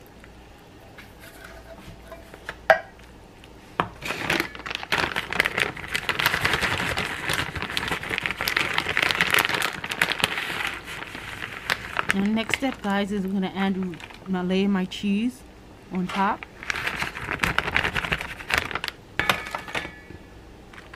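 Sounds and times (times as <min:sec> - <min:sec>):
foil pan crinkling: 0:04.0 - 0:14.5, 0:16.0 - 0:20.1.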